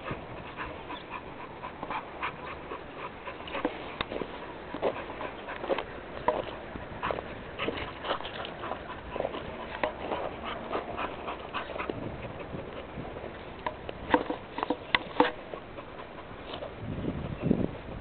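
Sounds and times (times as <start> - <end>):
dog sniffing: 0.0 - 13.5.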